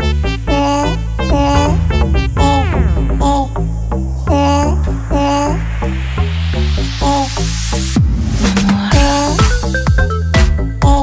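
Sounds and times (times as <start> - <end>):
upbeat electronic music: 1.2 - 4.6
falling pitch sweep: 1.2 - 6.0.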